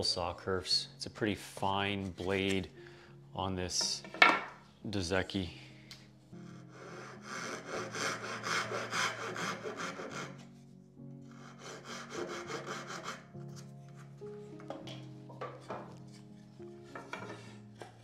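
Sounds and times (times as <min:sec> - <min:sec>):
hand saw cutting wood: 0:06.7 - 0:10.5, 0:11.3 - 0:13.7.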